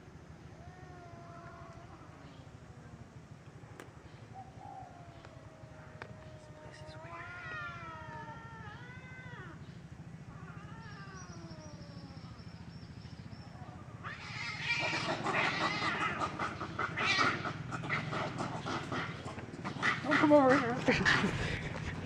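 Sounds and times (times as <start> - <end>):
cats yowling: 0.6 - 2.5, 4.4 - 9.6, 10.3 - 12.4, 13.5 - 21.4
cats screeching fighting: 6.0 - 9.6, 10.3 - 12.3, 13.8 - 21.3.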